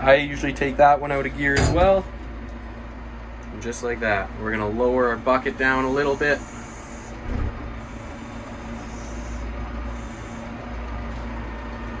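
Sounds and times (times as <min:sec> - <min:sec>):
hydraulic bucket lowering: 0:05.8 - 0:10.4.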